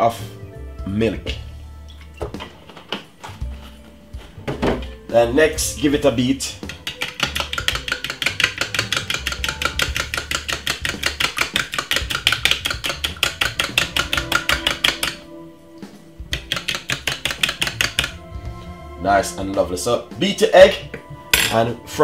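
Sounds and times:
fork beating egg in bowl: 6.6s - 15.2s, 16.3s - 18.2s.

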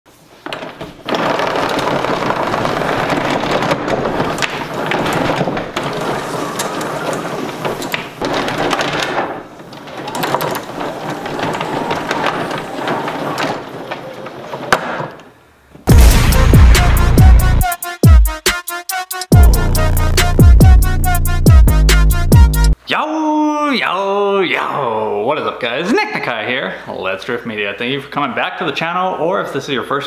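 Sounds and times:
hose rattling onto reel: 0.4s - 15.2s.

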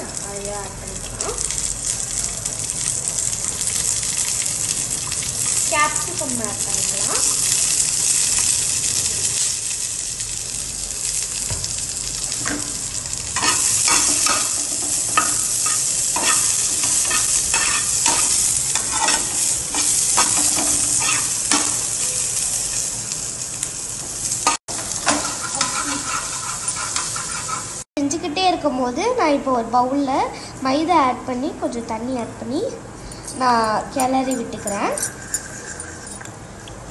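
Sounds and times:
vegetables sizzling in oil: 0.0s - 27.9s
spatula scraping a pan: 13.4s - 21.7s, 24.8s - 27.8s.

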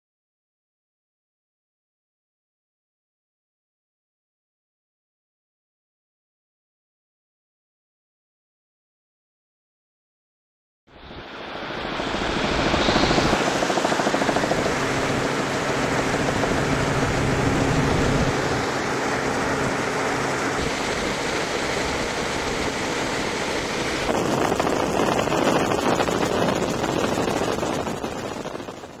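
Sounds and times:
small aircraft engine hum: 10.9s - 29.0s
wind noise in aircraft cabin: 10.9s - 29.0s.

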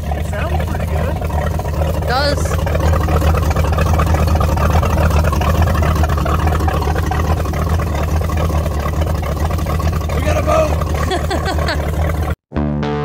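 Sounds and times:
boat engine idling: 0.0s - 12.4s
exhaust water spraying on ground: 0.0s - 12.4s.

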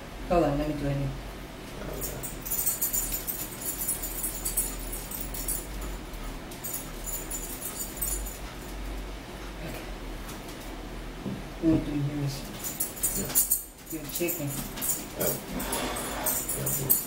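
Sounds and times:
steady low hum: 0.0s - 17.0s
high-pitched metallic jingling: 1.9s - 8.9s, 12.6s - 17.0s.

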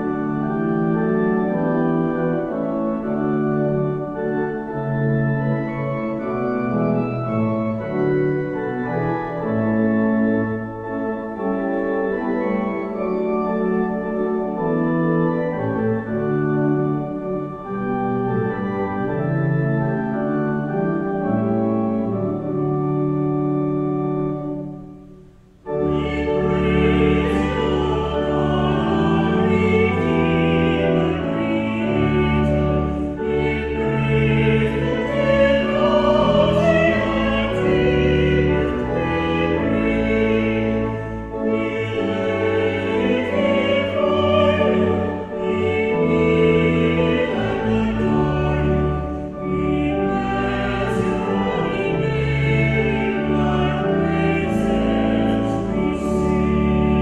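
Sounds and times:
pipe organ: 0.0s - 57.0s
choir singing a hymn: 25.7s - 57.0s.

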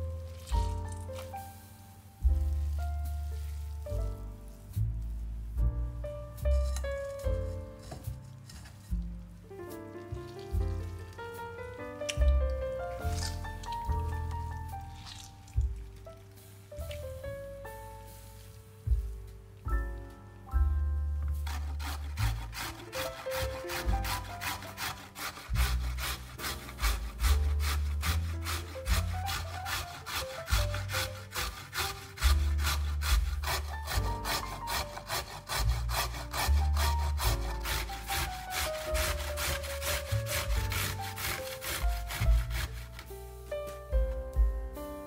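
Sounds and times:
background music: 0.0s - 45.0s
vegetable scraping on hand grater: 6.6s - 9.0s, 12.1s - 15.3s, 21.4s - 43.1s.

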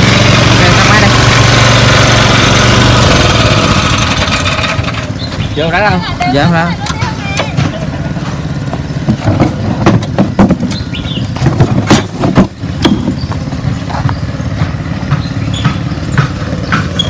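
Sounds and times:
small petrol engine running: 0.0s - 17.0s
plastic hoppers knocking: 8.6s - 17.0s.

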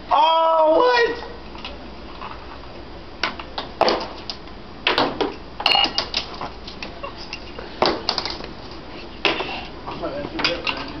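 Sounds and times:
metal objects clinking on workbench: 5.6s - 6.2s.

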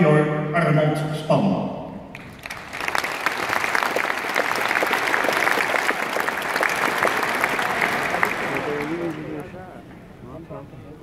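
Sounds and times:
large audience applauding: 2.2s - 9.6s.

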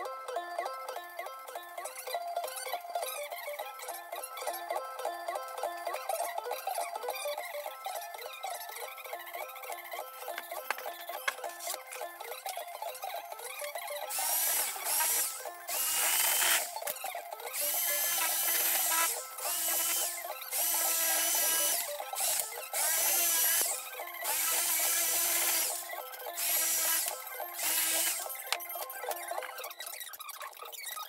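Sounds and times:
electric metal shear cutting: 14.0s - 29.6s.

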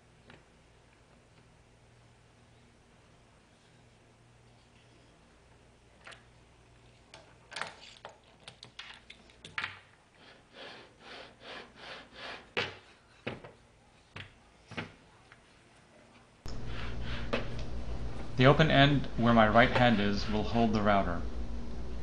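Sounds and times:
clicks and knocks of parts handled: 6.9s - 10.0s.

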